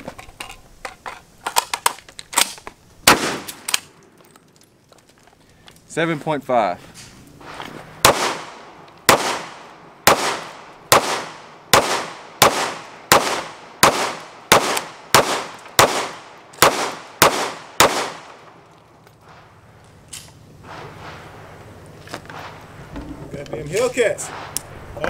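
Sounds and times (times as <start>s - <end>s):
gunshots with echo: 8.0s - 18.4s.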